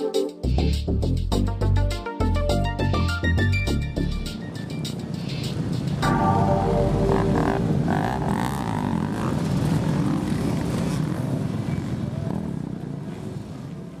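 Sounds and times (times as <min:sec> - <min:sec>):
motocross engines revving: 0:07.2 - 0:12.1.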